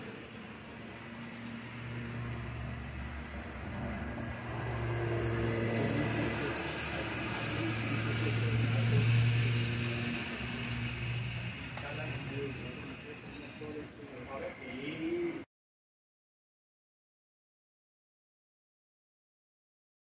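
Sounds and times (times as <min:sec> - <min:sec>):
model train humming: 0:00.0 - 0:15.4.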